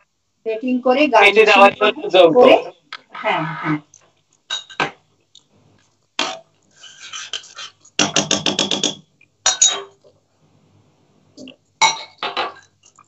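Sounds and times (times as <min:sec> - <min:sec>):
metal spoon scraping a pan: 0:06.7 - 0:08.4.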